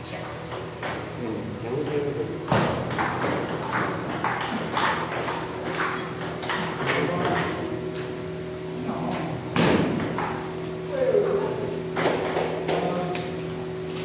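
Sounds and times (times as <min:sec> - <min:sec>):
table tennis balls clicking: 0:02.8 - 0:08.2, 0:11.2 - 0:13.3.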